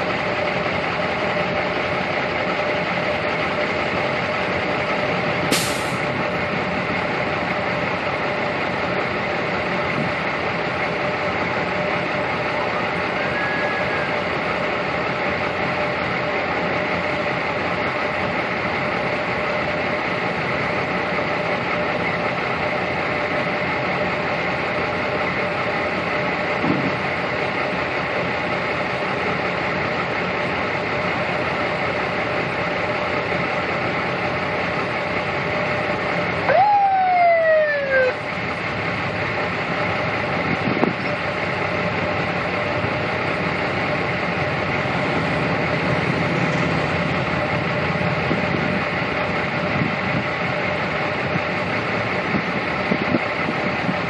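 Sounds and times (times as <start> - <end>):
traffic rumble: 0.0 - 54.0
police siren whoop: 12.7 - 14.2, 36.4 - 38.2.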